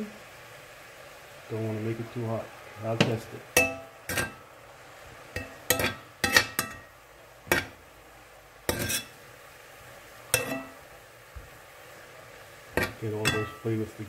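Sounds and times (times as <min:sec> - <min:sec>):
metal spoon clanking on skillet: 0:03.0 - 0:04.4, 0:05.3 - 0:07.8, 0:08.7 - 0:09.2, 0:10.3 - 0:10.8, 0:12.7 - 0:13.7.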